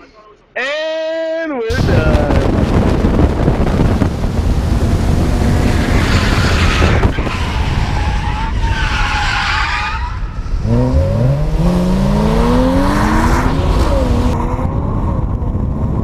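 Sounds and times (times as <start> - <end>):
race car engine revving: 2.8 - 8.6, 10.4 - 15.2
tires squealing and skidding: 5.4 - 11.2.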